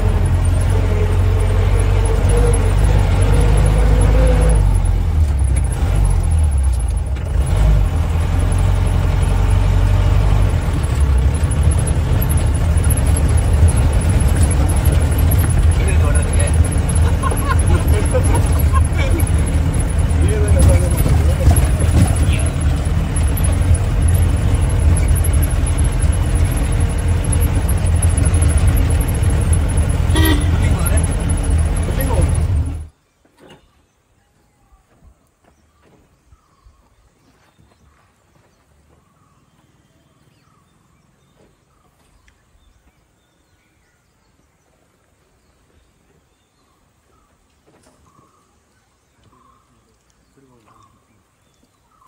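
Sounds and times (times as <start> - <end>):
car engine rumbling: 0.0 - 33.0
faint bird chirps: 33.0 - 52.0.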